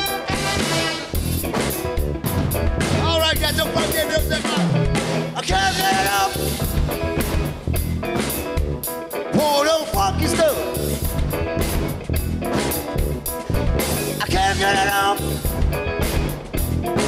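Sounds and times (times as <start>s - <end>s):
funk band playing: 0.0s - 17.0s
man singing: 3.0s - 6.7s, 9.3s - 10.8s, 14.2s - 15.5s.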